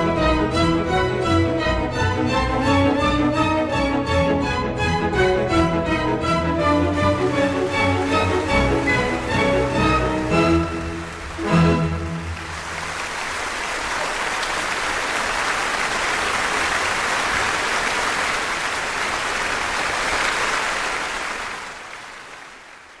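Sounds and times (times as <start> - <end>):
orchestra chord: 0.0 - 12.9
audience applauding: 6.1 - 23.0.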